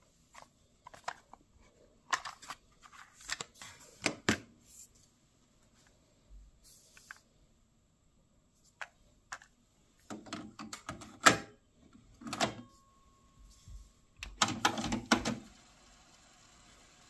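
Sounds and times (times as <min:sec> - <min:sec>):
faint steady tone: 0:11.5 - 0:14.2
cassette clicking and rattling: 0:14.2 - 0:15.4.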